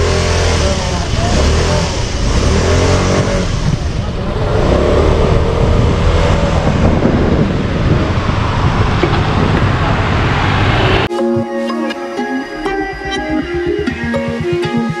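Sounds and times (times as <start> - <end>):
wind noise: 0.8 - 11.1.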